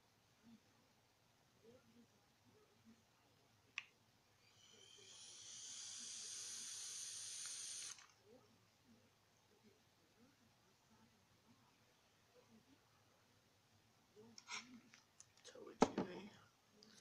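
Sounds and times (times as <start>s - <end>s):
vape sizzling hiss: 4.4s - 8.1s.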